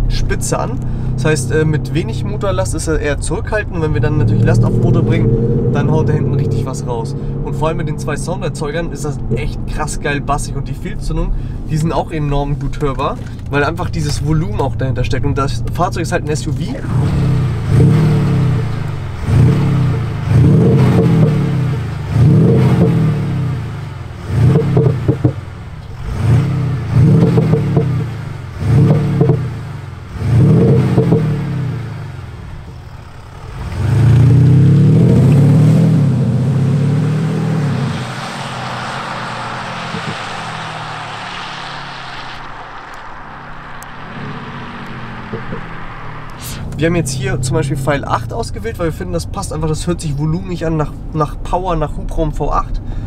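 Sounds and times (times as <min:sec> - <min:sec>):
diesel engine revving: 0:00.0 - 0:51.9
steady hiss of car pulling away: 0:16.9 - 0:47.1.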